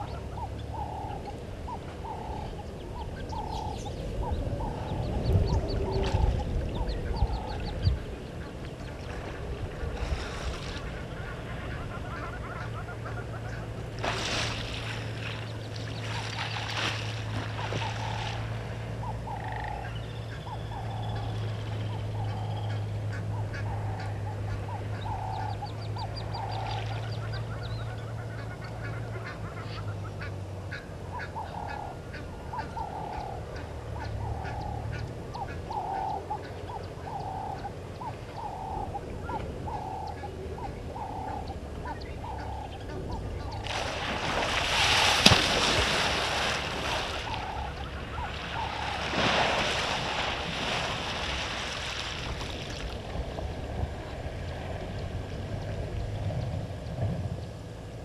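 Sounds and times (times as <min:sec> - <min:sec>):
low hum: 0:00.0 - 0:58.0
water splashing: 0:05.3 - 0:19.5, 0:43.2 - 0:56.2
honking animal call: 0:11.0 - 0:13.8, 0:17.6 - 0:43.6
sharp crack: 0:45.0 - 0:46.0.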